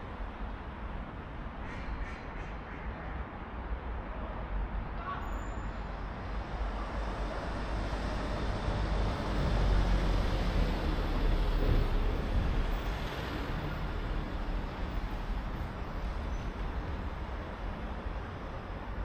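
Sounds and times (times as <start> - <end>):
road traffic rumble: 0.0 - 19.0
vehicle passing by: 7.0 - 14.5.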